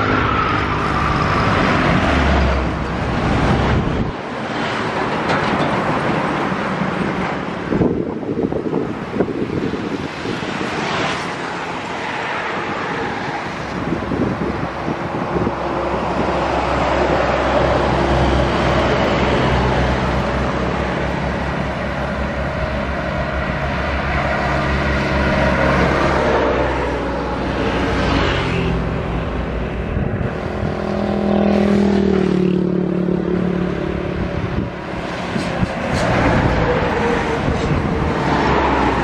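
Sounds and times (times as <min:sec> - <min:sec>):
heavy engine low drone: 0:00.0 - 0:05.6, 0:13.7 - 0:39.0
road traffic passing: 0:00.0 - 0:39.0.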